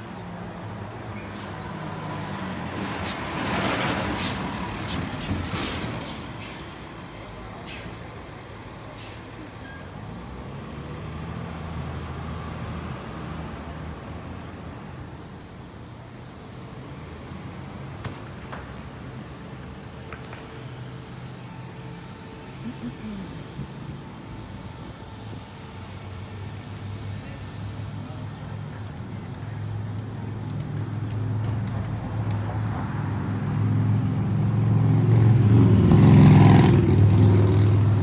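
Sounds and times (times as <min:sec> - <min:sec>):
air brakes hissing: 0:04.1 - 0:06.8, 0:07.6 - 0:08.0, 0:09.0 - 0:09.4
heavy vehicle engine running: 0:17.8 - 0:32.1.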